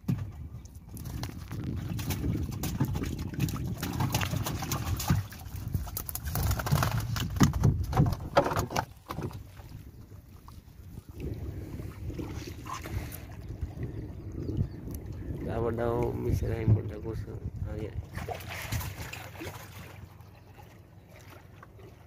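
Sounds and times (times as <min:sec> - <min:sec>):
splashes: 0:01.0 - 0:07.2, 0:18.1 - 0:22.0
wet fishing net rustling: 0:01.0 - 0:09.8
fish knocking in wooden boat: 0:06.2 - 0:09.4.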